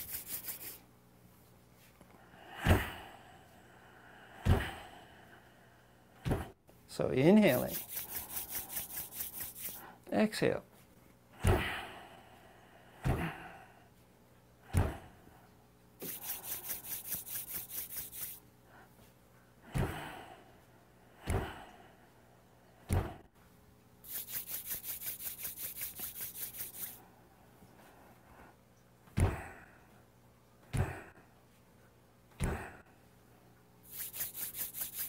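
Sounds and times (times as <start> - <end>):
palms rubbing together: 0.0 - 0.8, 7.3 - 9.9, 16.0 - 18.4, 24.0 - 27.0, 33.8 - 35.0
bare heels thudding on mat: 22.9 - 23.2.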